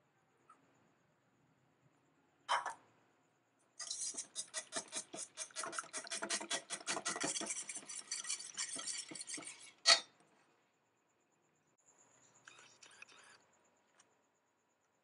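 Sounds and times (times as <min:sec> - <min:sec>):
whisk clinking in metal bowl: 0:03.8 - 0:10.0.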